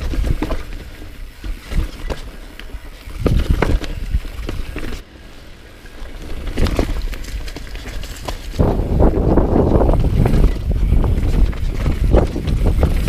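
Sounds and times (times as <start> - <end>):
mountain bike riding rocky trail: 0.0 - 13.0.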